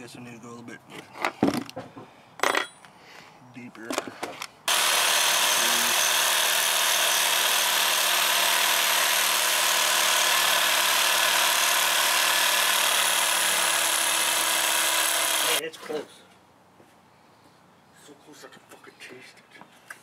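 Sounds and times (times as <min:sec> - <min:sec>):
reciprocating saw cutting metal: 0:04.7 - 0:15.6.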